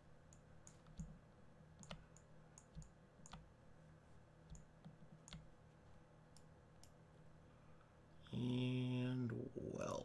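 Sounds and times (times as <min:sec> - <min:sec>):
faint steady hum: 0:00.0 - 0:10.0
computer mouse clicks: 0:00.3 - 0:01.2, 0:01.8 - 0:03.5, 0:04.5 - 0:05.5, 0:06.3 - 0:07.0.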